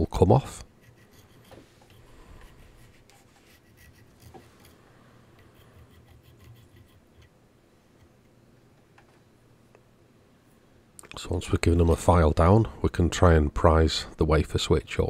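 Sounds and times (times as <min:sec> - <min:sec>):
hand file rasping metal: 0:00.7 - 0:04.8, 0:05.4 - 0:07.3.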